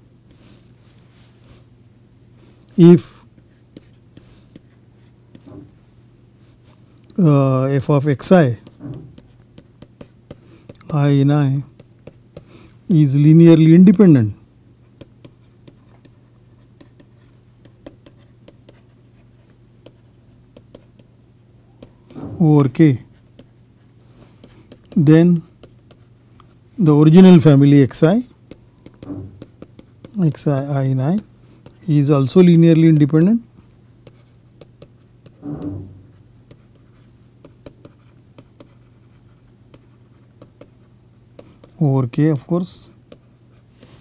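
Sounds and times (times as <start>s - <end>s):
low steady hum: 0.0s - 44.0s
stylus tapping and scratching: 2.6s - 5.8s, 6.8s - 12.8s, 13.5s - 14.2s, 14.9s - 44.0s
stylus clicking on tablet screen: 28.4s - 30.7s.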